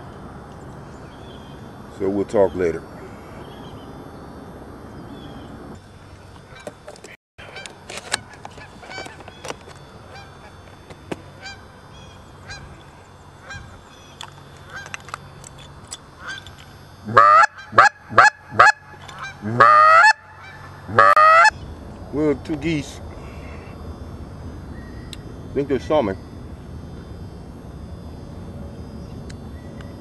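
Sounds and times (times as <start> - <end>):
geese honking: 7.4 - 15.2, 16.2 - 21.6.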